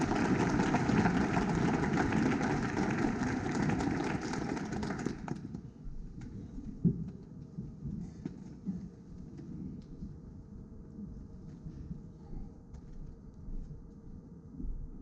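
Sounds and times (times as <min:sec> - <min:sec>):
hall noise: 0:00.0 - 0:05.4
audience applauding: 0:00.0 - 0:05.6.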